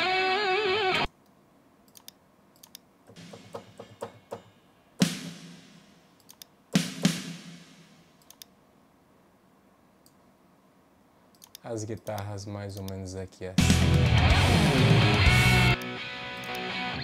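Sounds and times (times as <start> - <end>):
mouse and keyboard clicks: 1.9 - 2.8, 6.2 - 6.5, 8.2 - 8.5, 11.3 - 12.2
sharp ringing hits: 3.1 - 6.0.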